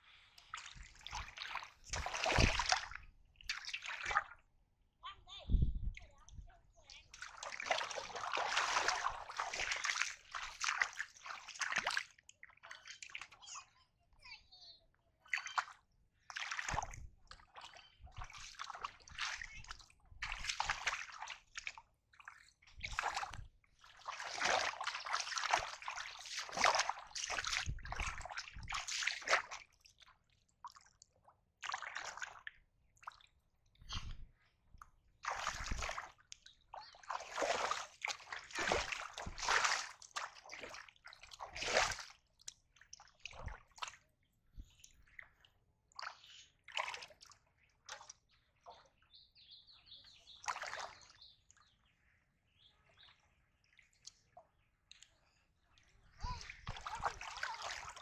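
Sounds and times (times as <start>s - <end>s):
muddy water splashing: 0.3s - 4.4s, 6.8s - 13.6s, 15.3s - 30.9s, 31.6s - 33.3s, 35.2s - 44.0s, 46.0s - 48.8s, 50.3s - 51.4s, 55.8s - 58.0s.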